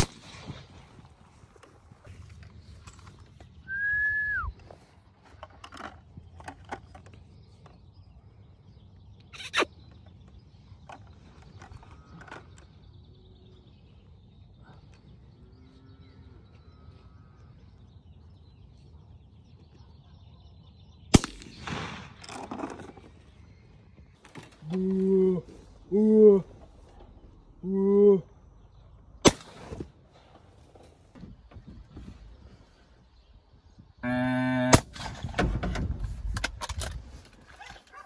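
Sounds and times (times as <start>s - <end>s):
rifle shot: 0.0s - 0.8s, 21.1s - 22.3s, 29.2s - 29.8s
faint bird calls: 7.0s - 21.1s.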